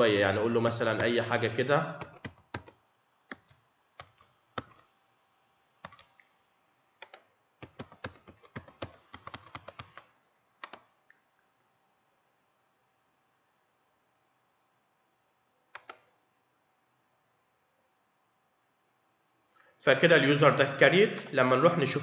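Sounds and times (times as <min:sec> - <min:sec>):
faint keyboard typing: 0:00.0 - 0:01.2, 0:02.0 - 0:04.9, 0:05.8 - 0:06.4, 0:07.0 - 0:11.5, 0:15.6 - 0:16.2.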